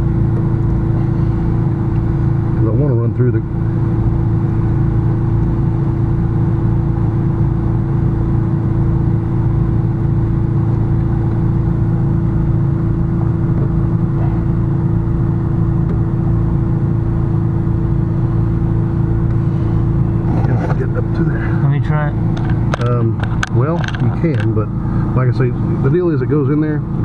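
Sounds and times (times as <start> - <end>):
constant tone: 0.0 - 27.0
motor humming: 7.0 - 27.0.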